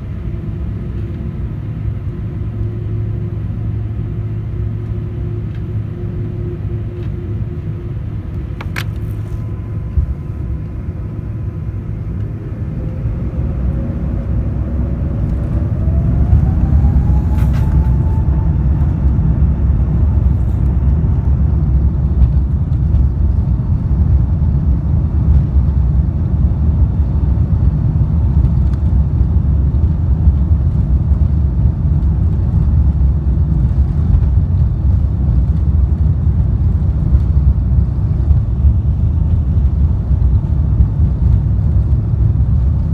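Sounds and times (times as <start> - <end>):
takeoff roll rumble: 0.0 - 42.9
jet engines spooling up: 0.1 - 23.4.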